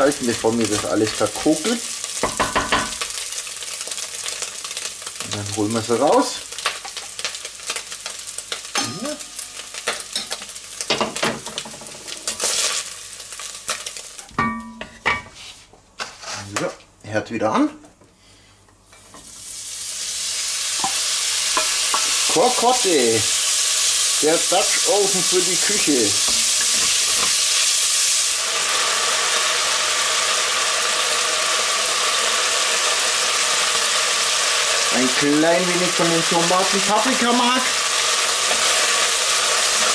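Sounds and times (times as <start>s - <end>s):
meat sizzling in a pot: 0.0s - 15.6s, 18.9s - 39.9s
wooden spatula scraping a pot: 15.3s - 16.6s.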